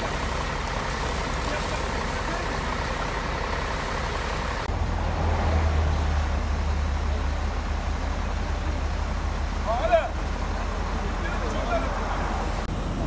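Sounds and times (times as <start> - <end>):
steam hissing: 0.0 - 4.7, 5.9 - 12.7
water from fire hose: 0.0 - 13.0.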